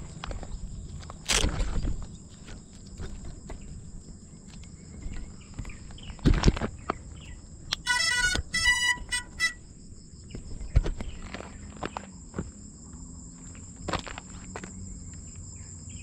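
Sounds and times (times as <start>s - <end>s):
wind rumble on microphone: 0.0s - 7.7s
insects droning: 0.0s - 16.0s
short loud pitched tones: 7.8s - 9.6s.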